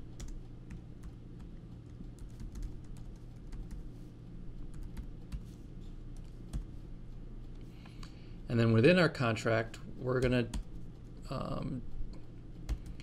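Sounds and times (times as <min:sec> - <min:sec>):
faint low hum: 0:00.0 - 0:13.0
keyboard typing: 0:00.1 - 0:03.9, 0:04.6 - 0:06.8, 0:12.5 - 0:13.0.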